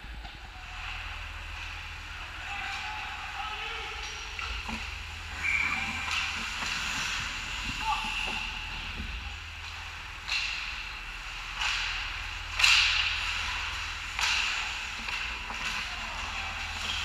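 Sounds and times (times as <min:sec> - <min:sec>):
skate blades scraping ice: 0:05.3 - 0:09.0.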